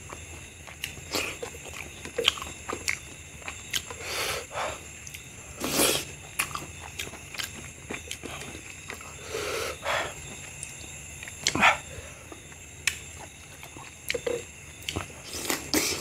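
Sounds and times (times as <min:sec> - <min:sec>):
wet chewing and mouth smacks: 0:00.0 - 0:04.0, 0:04.8 - 0:09.2, 0:10.1 - 0:16.0
loud slurps: 0:05.6 - 0:06.1.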